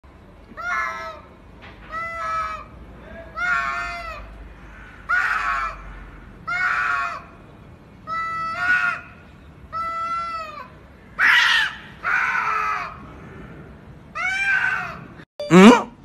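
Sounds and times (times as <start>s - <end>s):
cats yowling: 3.3s - 4.3s, 9.7s - 13.0s, 14.1s - 15.2s.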